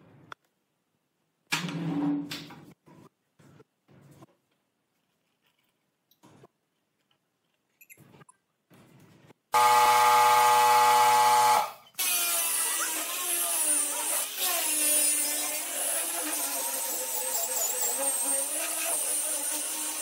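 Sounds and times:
angle grinder sanding wood: 9.6s - 20.0s
power tool running: 9.6s - 20.0s.

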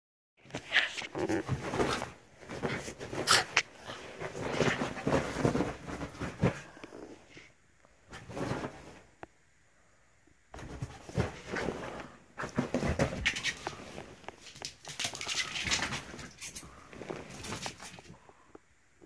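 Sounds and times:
fabric and phone rustling: 0.4s - 7.1s, 10.6s - 18.2s.

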